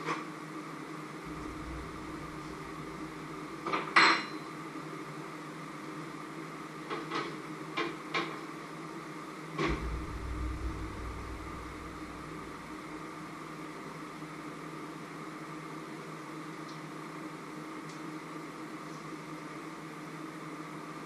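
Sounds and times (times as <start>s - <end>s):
steady background hum: 1.2s - 5.0s, 9.6s - 14.9s.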